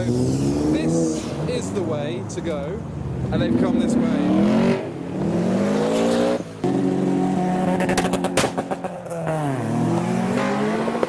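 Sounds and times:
sharp exhaust pops: 7.8s - 9.2s.

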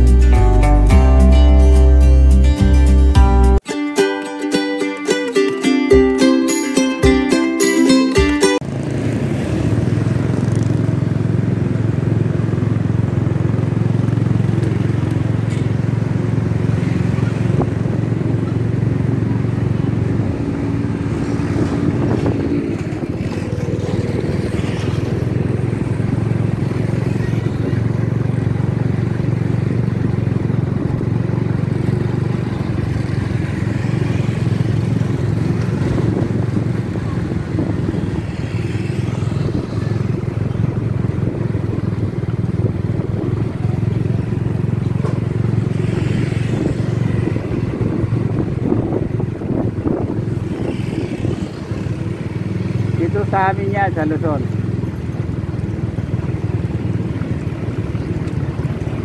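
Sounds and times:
wind and road noise: 0.0s - 2.2s, 8.0s - 59.0s
motorcycle engine running: 8.2s - 59.0s.

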